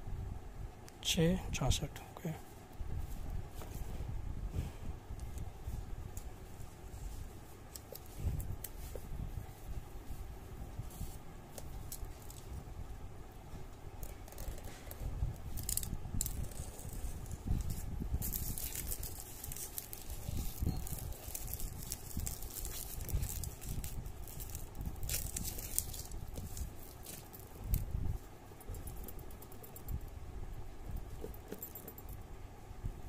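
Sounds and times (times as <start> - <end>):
plastic shrink-wrap crinkling: 15.5 - 27.8.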